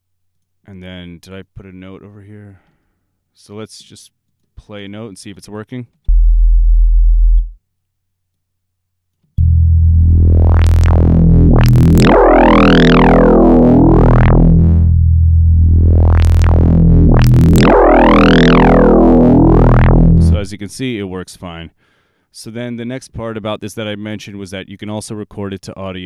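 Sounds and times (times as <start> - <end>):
deep synth note: 9.4 - 20.7.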